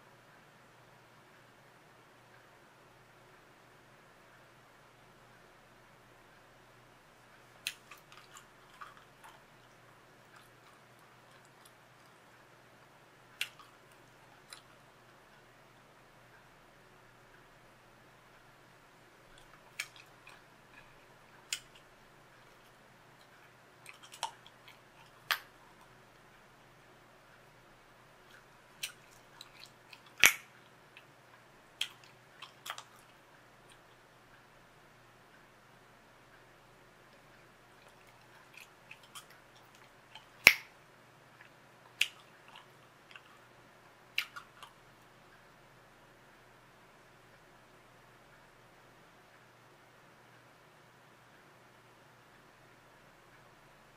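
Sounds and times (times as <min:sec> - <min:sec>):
gum chewing smacks: 0:07.5 - 0:12.2, 0:13.4 - 0:14.8, 0:19.3 - 0:26.0, 0:28.2 - 0:31.1, 0:31.8 - 0:33.9, 0:37.1 - 0:40.7, 0:41.4 - 0:43.5, 0:44.1 - 0:44.8
bubble gum snaps: 0:30.0 - 0:30.5, 0:40.4 - 0:40.7.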